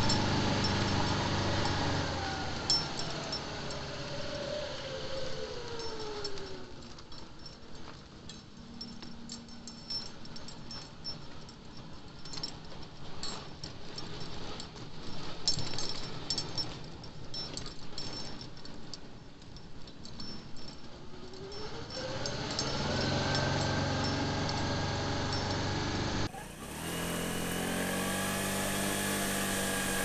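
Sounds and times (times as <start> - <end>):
motorbike engine running low: 0.0 - 6.2, 21.4 - 30.0
road and wind noise: 0.0 - 30.0.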